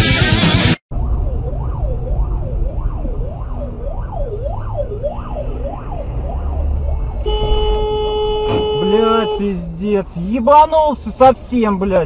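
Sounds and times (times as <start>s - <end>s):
road noise: 0.0s - 12.0s
emergency siren wailing: 0.9s - 9.4s
car engine rumble: 0.9s - 12.0s.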